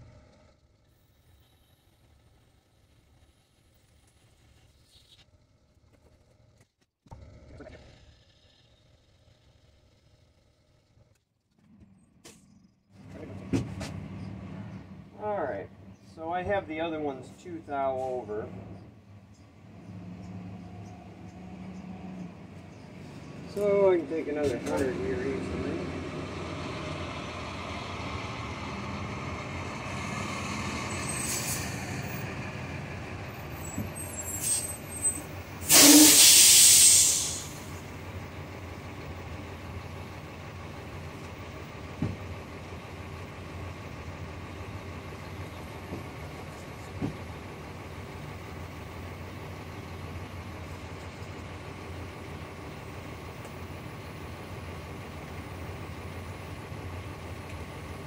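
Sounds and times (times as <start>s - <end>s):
loud hiss: 35.6s - 37.8s.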